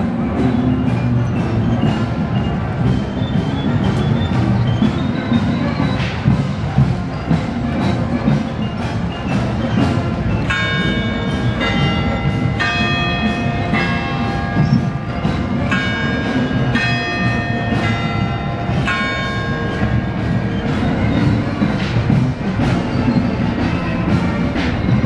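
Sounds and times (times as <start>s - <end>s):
drums keeping a steady beat: 0.0s - 25.0s
marching band playing: 0.0s - 25.0s
ringing bell tones: 10.5s - 21.8s.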